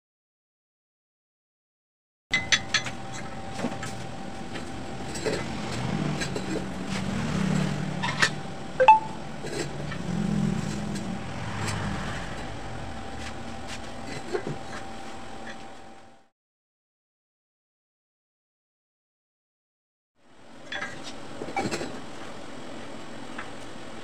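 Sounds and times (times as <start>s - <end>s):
workshop hum: 2.3s - 16.3s
low rumble: 11.0s - 14.2s.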